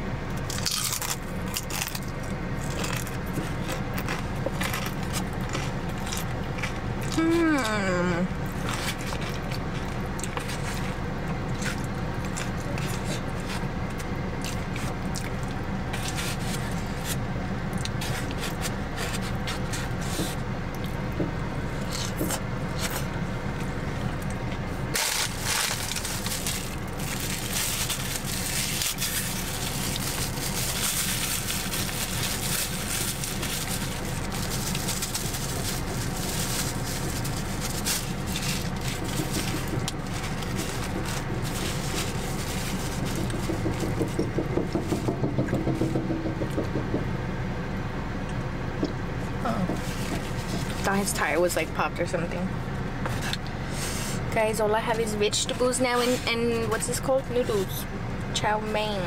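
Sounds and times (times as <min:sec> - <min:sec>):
car cabin hum and hiss: 0:00.0 - 0:59.0
wet chewing: 0:00.6 - 0:07.2, 0:08.4 - 0:20.1.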